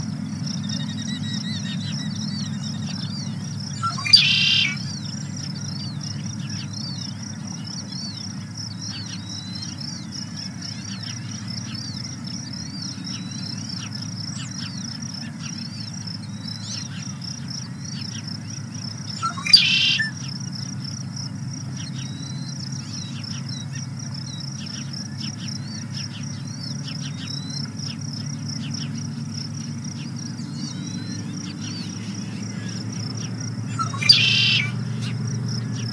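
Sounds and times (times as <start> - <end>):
high pulsing bird trill: 0.0 - 35.9
high down-slurred chirps: 0.6 - 6.6, 29.7 - 35.9
loud brief bird call: 3.8 - 4.9, 19.2 - 20.1, 33.7 - 35.2
low steady rumble: 4.8 - 19.4.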